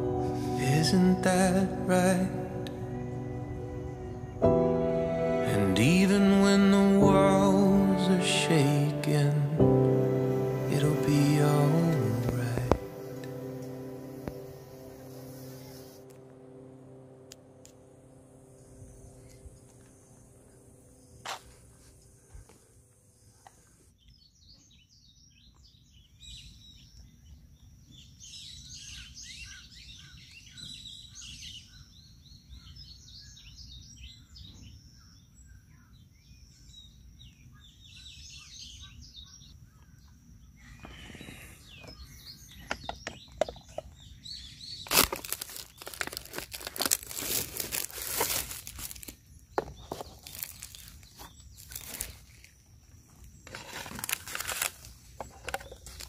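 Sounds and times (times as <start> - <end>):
small birds chirping: 18.4 - 56.0
crinkling and rustling handling noise: 44.9 - 56.0.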